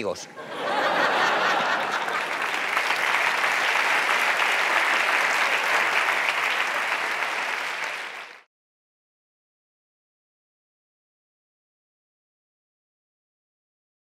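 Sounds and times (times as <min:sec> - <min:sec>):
audience applauding: 0:00.6 - 0:08.5.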